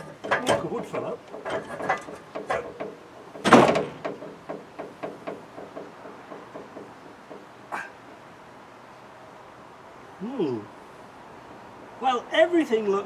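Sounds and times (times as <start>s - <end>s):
heavy metal thud: 0.0s - 7.6s
metal knocks and clanks: 0.0s - 7.6s.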